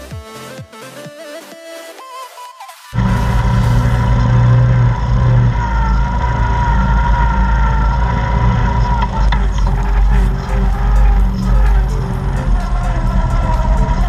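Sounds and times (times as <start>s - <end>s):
quad bike engine running: 3.0s - 14.0s.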